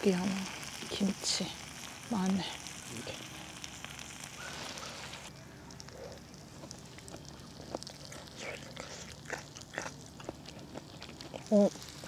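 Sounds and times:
meat sizzling on a griddle: 0.0s - 5.3s
small clicks and crackles: 0.0s - 12.0s.

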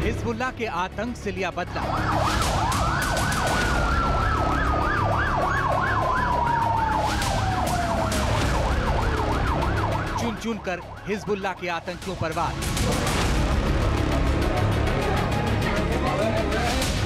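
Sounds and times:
siren rising and falling slowly: 1.8s - 12.6s
siren wailing rapidly: 1.8s - 12.9s.

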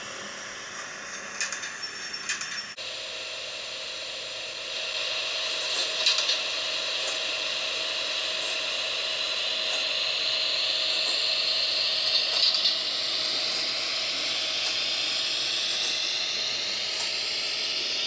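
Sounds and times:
model train motor whine: 0.0s - 18.0s.

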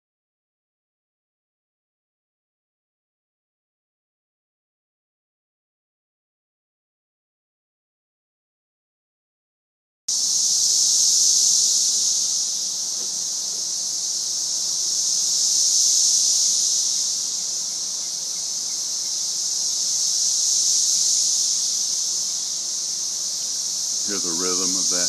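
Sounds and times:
cicadas droning: 10.1s - 25.0s.

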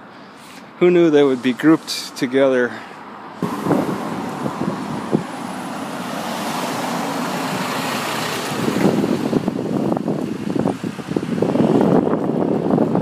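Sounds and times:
road traffic passing: 0.0s - 13.0s
wind buffeting microphone: 3.4s - 13.0s.

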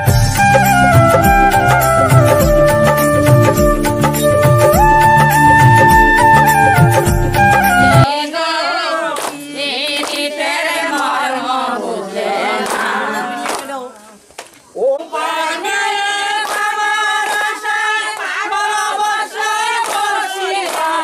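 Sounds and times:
group singing: 8.0s - 14.2s, 14.8s - 21.0s.

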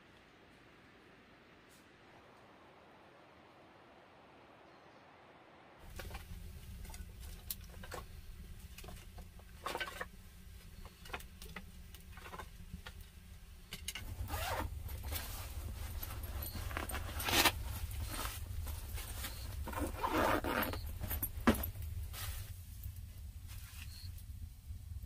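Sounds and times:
zipper pulled: 14.0s - 14.7s, 16.2s - 18.4s, 19.3s - 20.9s
fabric backpack being handled: 14.0s - 22.6s.

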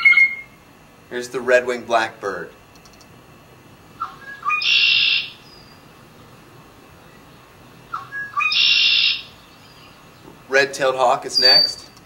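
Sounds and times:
bird song with buzzy trill: 0.0s - 0.6s, 4.0s - 5.9s, 6.9s - 10.3s, 11.3s - 12.0s.

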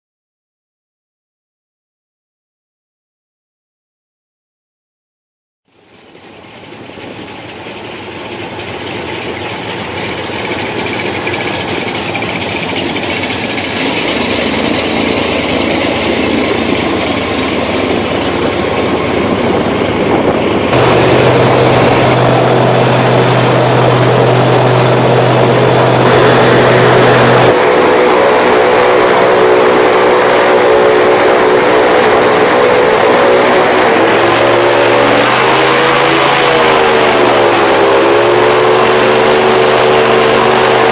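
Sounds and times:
airboat engine and propeller drone: 5.7s - 40.9s
water noise: 5.7s - 40.9s
rushing wind: 6.6s - 40.8s.

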